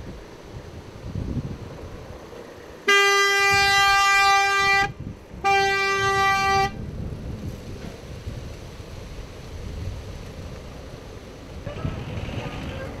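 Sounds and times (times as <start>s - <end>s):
vehicle horn blasts: 2.9s - 6.8s.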